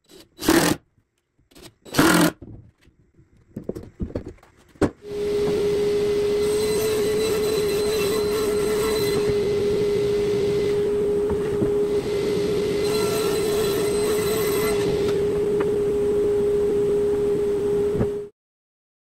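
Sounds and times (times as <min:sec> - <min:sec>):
saw ripping plywood: 0:00.0 - 0:00.8, 0:01.5 - 0:02.4, 0:06.5 - 0:09.4
table saw whining: 0:05.0 - 0:18.3.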